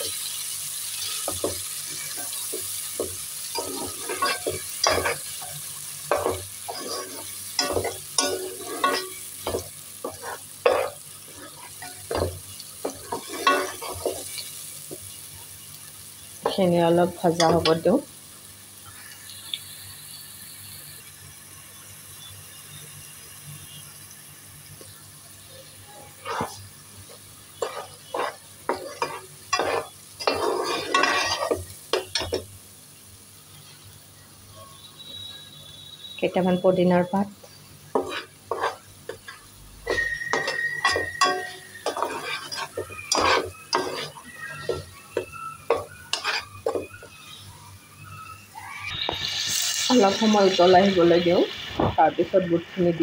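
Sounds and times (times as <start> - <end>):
paste sizzling in oil: 0.0 - 53.0
metal spatula scraping a pan: 0.9 - 15.0, 25.8 - 32.5, 37.9 - 47.4.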